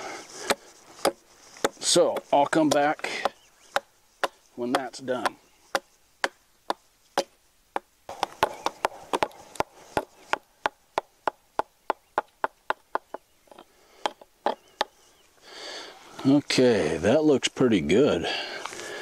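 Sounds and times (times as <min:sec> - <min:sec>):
hatchet chopping log: 0:00.4 - 0:15.0.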